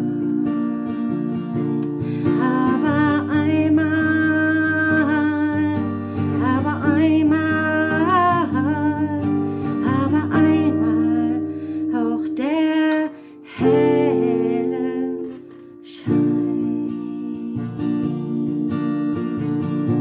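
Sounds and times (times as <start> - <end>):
woman singing with vibrato: 0.0 - 1.2, 2.1 - 19.0, 19.6 - 20.0
guitar: 0.0 - 20.0.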